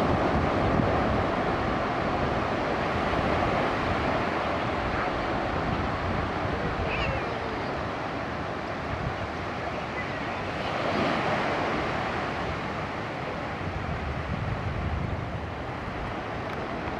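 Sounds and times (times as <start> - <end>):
small waves washing onto beach: 0.0 - 16.9
wind rumbling on microphone: 0.0 - 16.9.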